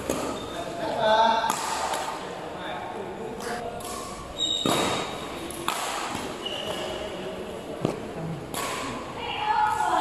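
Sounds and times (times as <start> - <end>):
rackets hitting shuttlecock: 0.0 - 0.4, 1.4 - 2.2, 3.7 - 6.9, 7.8 - 9.1.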